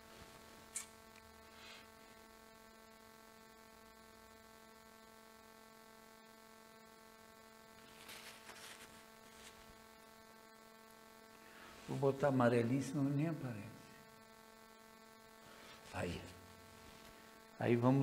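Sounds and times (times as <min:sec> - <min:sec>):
faint electrical hum: 0:00.0 - 0:18.0
soft rustles: 0:07.8 - 0:09.7.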